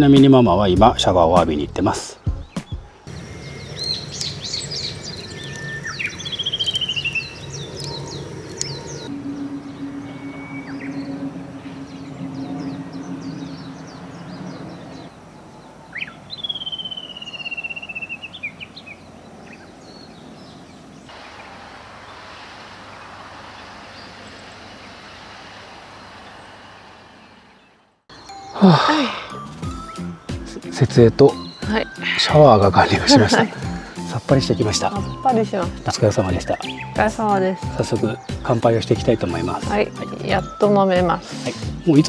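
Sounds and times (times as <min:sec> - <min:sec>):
bird whistling and chirping: 0:03.4 - 0:15.2, 0:15.9 - 0:20.5, 0:31.3 - 0:34.0, 0:34.6 - 0:38.6
steady low hum: 0:07.1 - 0:16.3
even hiss: 0:21.0 - 0:27.7.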